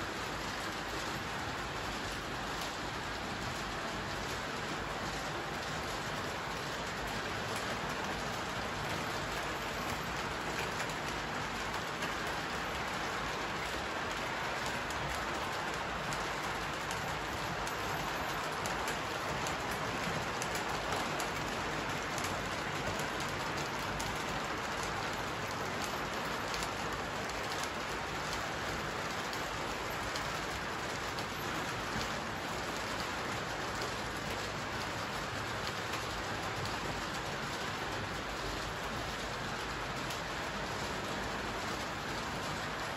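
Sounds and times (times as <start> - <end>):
model trains whirring on rails: 0.0 - 42.9.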